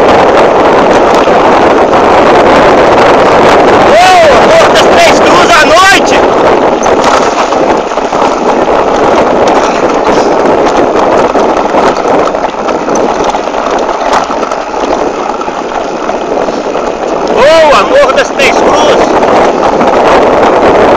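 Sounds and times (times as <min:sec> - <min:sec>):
bike rattling: 0:00.0 - 0:20.9
bike tyres on gravel: 0:00.0 - 0:20.9.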